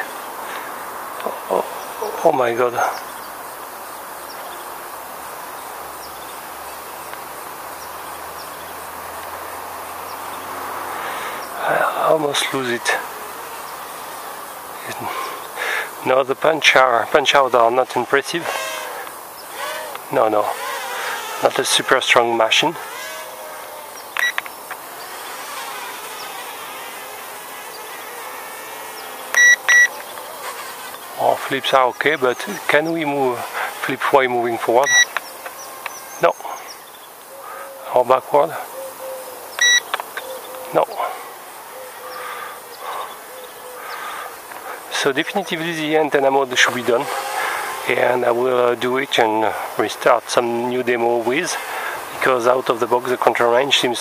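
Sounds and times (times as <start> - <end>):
birds chirping: 0.0 - 54.0
outdoor background noise: 0.0 - 54.0
toy drone buzzing: 18.5 - 21.5, 22.8 - 24.4
loud high beeps: 29.4 - 29.9, 34.8 - 35.1, 39.6 - 39.8.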